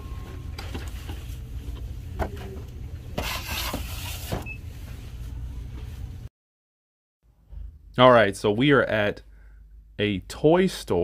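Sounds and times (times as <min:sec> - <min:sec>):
low shop hum: 0:00.0 - 0:06.3.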